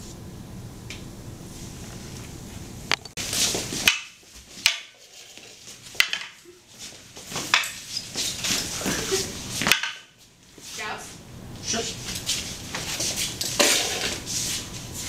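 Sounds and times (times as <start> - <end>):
room hum: 0.0 - 15.0
wooden poles clacking: 2.9 - 10.2.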